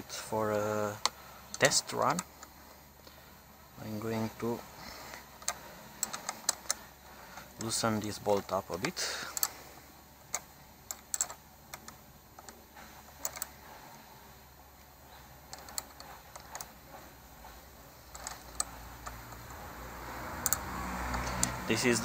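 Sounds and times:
ratchet wrench clicking: 4.0 - 9.6, 10.2 - 13.7, 15.4 - 22.0.

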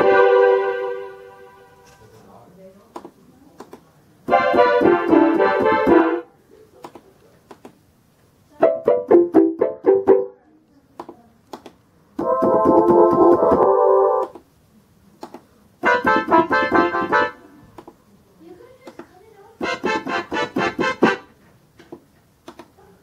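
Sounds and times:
held choir chord: 0.0 - 1.8
electronic keyboard phrases: 4.3 - 6.3, 12.2 - 14.3, 15.8 - 17.5, 19.6 - 21.4.

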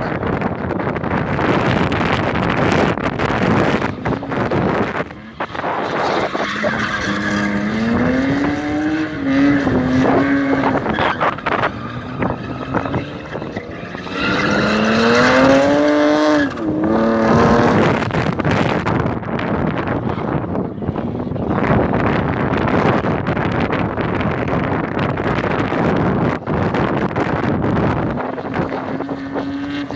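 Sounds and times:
car engine revving hard: 1.6 - 18.9, 28.0 - 29.9.

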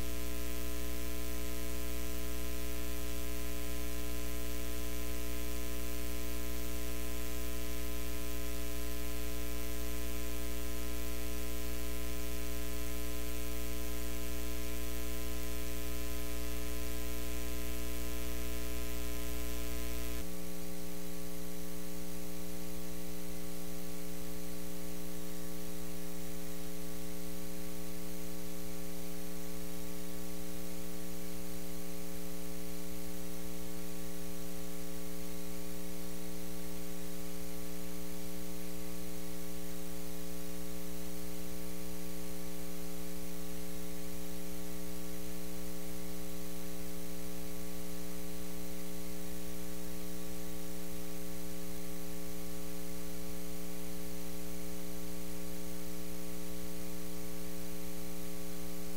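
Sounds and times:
electrical mains hum: 0.0 - 26.8.

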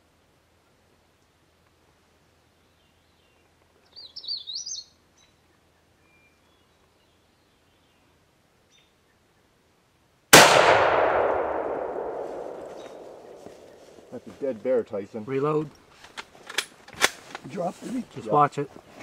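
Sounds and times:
warbling bird song: 2.7 - 8.1
gunshot echoing through woods: 10.3 - 14.2.

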